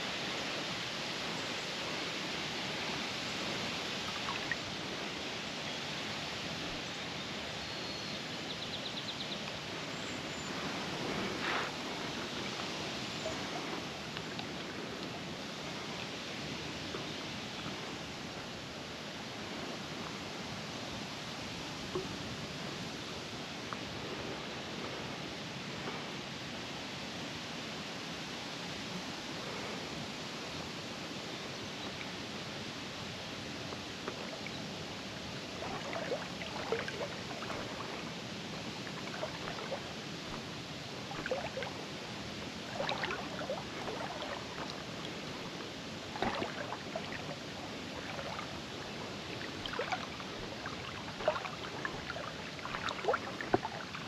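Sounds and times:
river water rushing: 0.0s - 8.6s, 9.4s - 26.3s, 27.7s - 54.0s
water sloshing and splashing: 34.0s - 54.0s.

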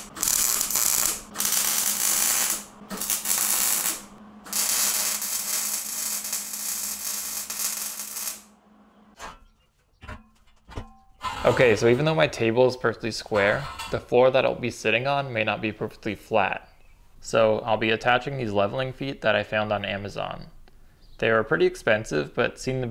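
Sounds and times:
welder crackling: 0.0s - 8.6s
steady low hum: 0.0s - 21.0s.

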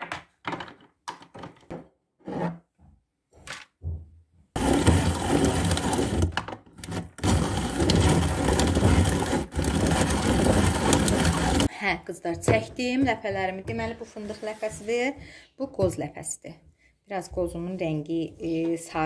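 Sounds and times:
electric grater motor whirring: 4.6s - 11.7s.

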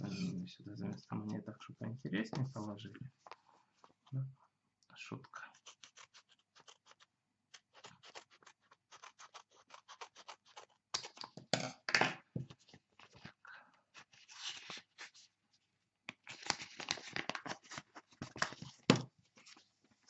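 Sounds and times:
scissors snipping paper: 5.5s - 11.4s
paper rustling: 12.5s - 15.3s, 16.2s - 20.0s.

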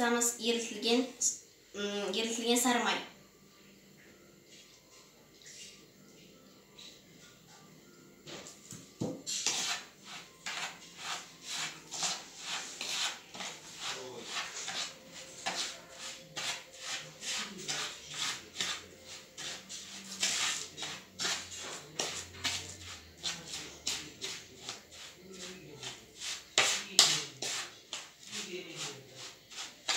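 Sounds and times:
spoon stirring and scraping bowl: 8.3s - 29.9s.

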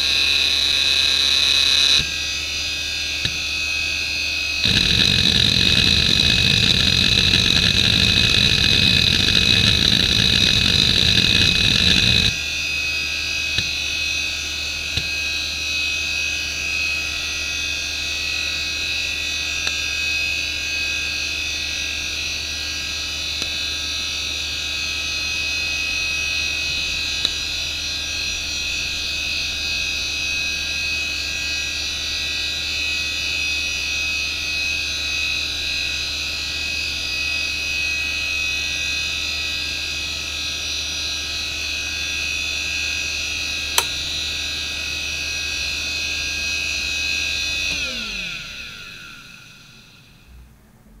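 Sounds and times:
hard drive spinning down: 4.6s - 12.4s, 46.9s - 50.2s
hard drive whining: 4.6s - 12.4s, 46.8s - 50.3s
sharp ticks: 4.6s - 12.4s.

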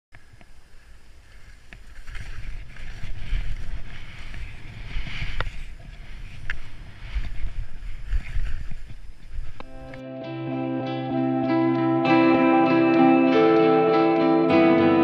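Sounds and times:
skis hissing through snow: 0.2s - 9.9s
wind buffeting microphone: 0.2s - 10.0s.

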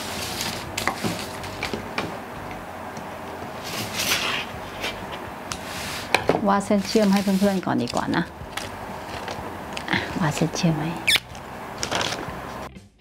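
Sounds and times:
paper rustling on a table: 0.0s - 2.0s, 3.6s - 10.5s, 11.8s - 12.6s.

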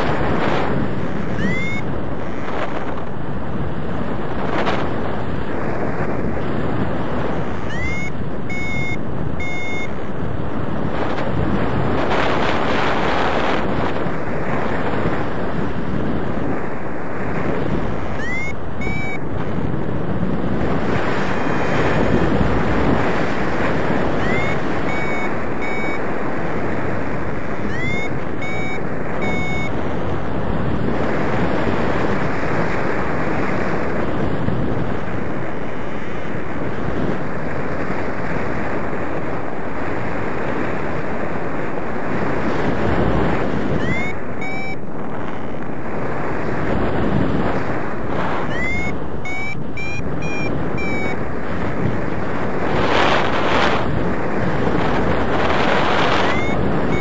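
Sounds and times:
wind on microphone: 0.0s - 57.0s
faint short electronic beeps: 1.3s - 1.9s, 7.6s - 10.0s, 18.2s - 19.2s, 24.2s - 26.1s, 27.6s - 29.8s, 43.8s - 44.8s, 48.5s - 51.2s, 56.2s - 57.0s.

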